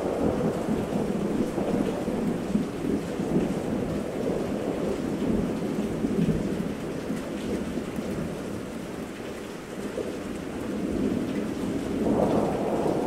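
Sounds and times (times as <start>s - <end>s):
rolling thunder: 0.0s - 6.5s, 10.8s - 13.0s
steady rain: 0.0s - 13.0s.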